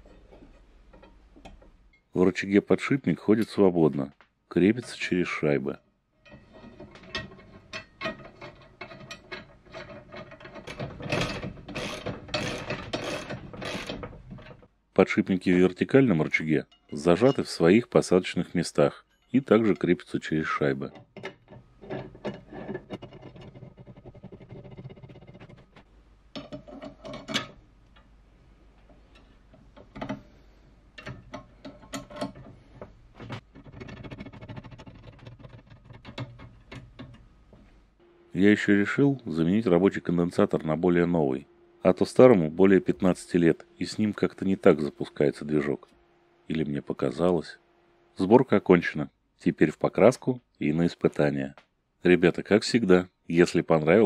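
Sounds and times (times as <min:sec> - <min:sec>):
metal parts clicking: 0:06.2 - 0:14.6.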